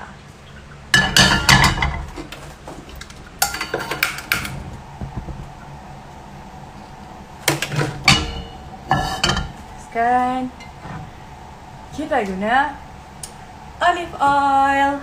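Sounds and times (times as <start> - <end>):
kitchenware clanking: 0.9 - 5.2, 7.4 - 9.7.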